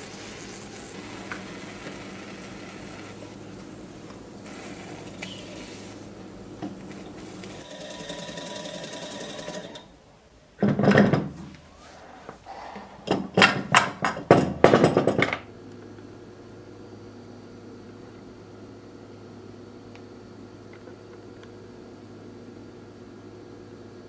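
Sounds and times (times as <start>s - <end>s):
steam engine hissing: 0.0s - 6.3s.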